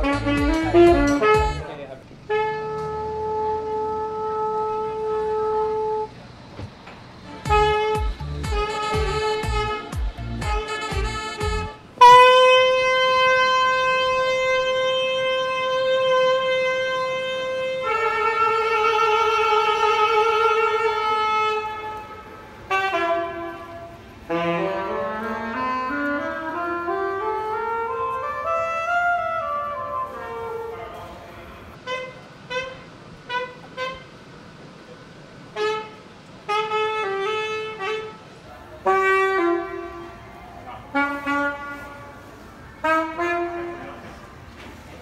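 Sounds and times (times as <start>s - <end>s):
thumping beat: 0.0s - 1.6s, 7.3s - 11.8s
saxophone playing: 0.0s - 6.2s, 7.2s - 34.3s, 35.5s - 44.5s.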